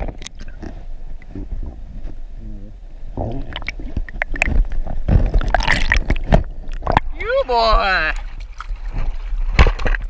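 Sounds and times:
underwater gurgling and sloshing: 0.0 - 10.0
sharp splashes and knocks: 3.3 - 10.0.

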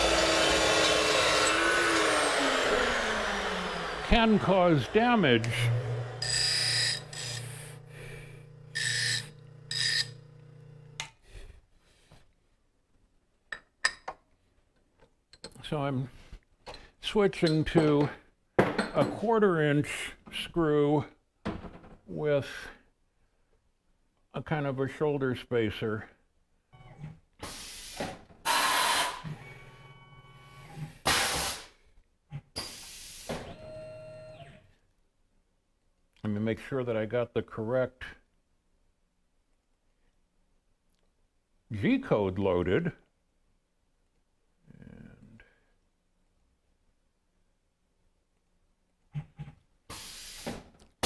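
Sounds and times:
bench grinder motor running: 0.0 - 11.0
compressed air hisses: 27.4 - 29.2, 31.1 - 31.7, 49.9 - 50.6.

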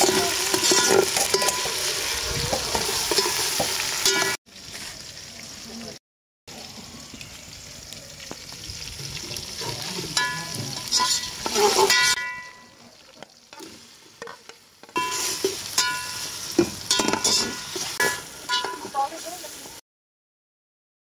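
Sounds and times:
metal spoon scraping a pot: 0.0 - 4.4, 9.6 - 12.2, 14.2 - 19.0
chicken sizzling in oil: 0.0 - 19.8.

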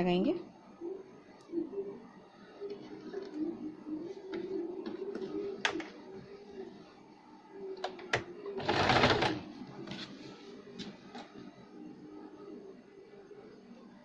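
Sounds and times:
sewing machine stitching: 8.6 - 9.4.

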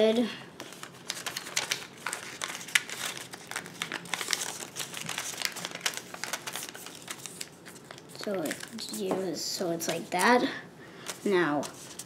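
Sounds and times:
paper crinkling and rustling: 0.6 - 9.2, 11.0 - 12.0.

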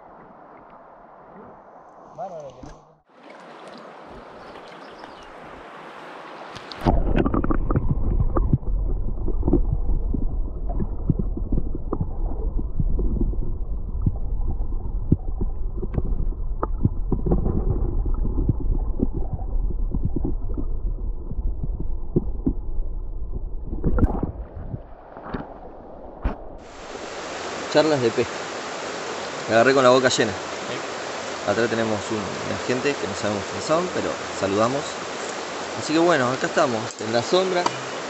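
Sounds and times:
muffled underwater river rush: 0.0 - 38.0
small underwater clicks: 6.5 - 20.7.

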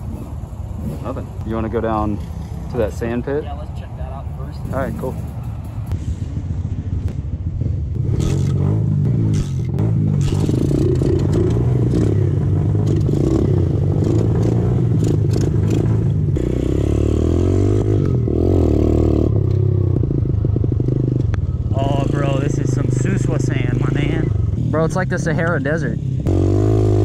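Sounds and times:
pit bike engine revving: 7.5 - 27.0.

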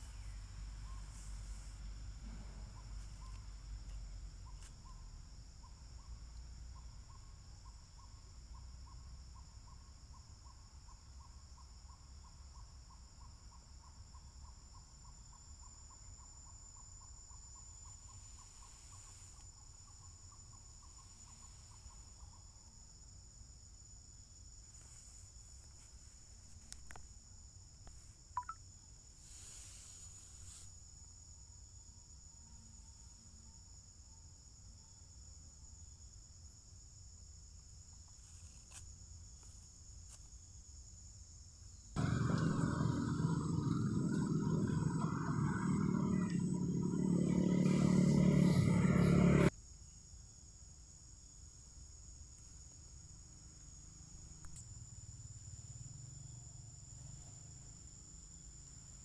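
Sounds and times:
insects droning: 0.0 - 59.0
loud rushing rumbling noise: 42.0 - 49.5.

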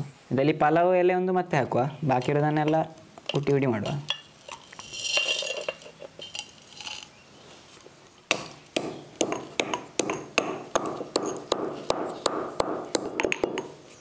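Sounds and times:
spices rattling into mortar: 2.2 - 7.2, 8.3 - 13.8
stone pestle pounding: 8.3 - 13.8.

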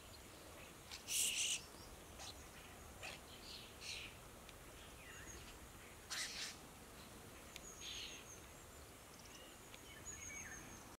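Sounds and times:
starling harsh calls: 0.9 - 1.6, 6.1 - 6.6.

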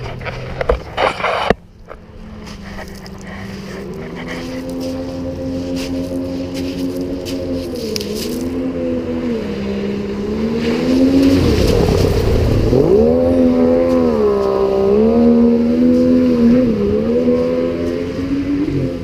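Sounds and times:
boat engine running: 0.0 - 19.0
rush of noise: 0.0 - 19.0.

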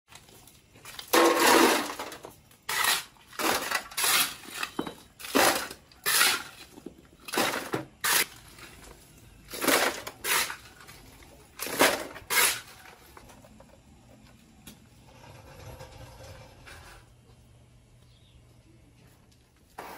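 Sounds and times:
rubble clattering into wheelbarrow: 0.8 - 8.9, 9.5 - 13.4
shovel scraping brick rubble: 1.0 - 13.1.

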